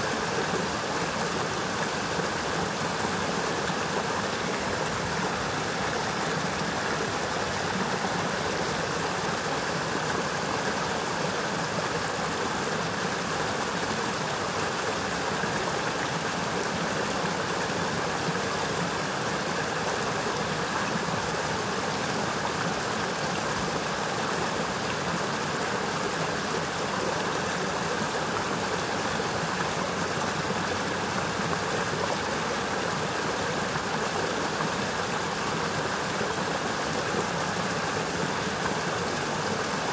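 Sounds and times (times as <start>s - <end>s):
stream rushing: 0.0s - 39.9s.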